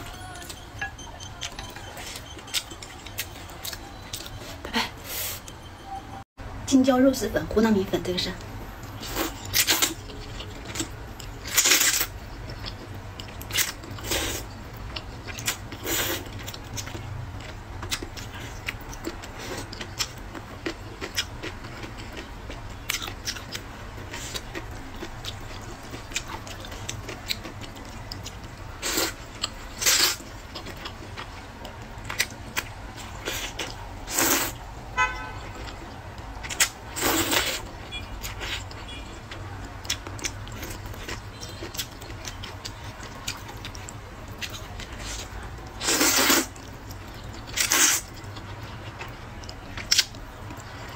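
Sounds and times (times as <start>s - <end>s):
wet chewing and smacking: 8.4s - 34.6s, 35.4s - 50.9s
noodle slurping: 45.8s - 46.5s.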